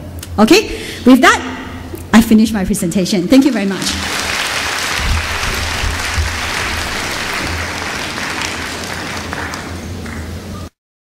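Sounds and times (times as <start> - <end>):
audience applauding: 3.5 - 10.4.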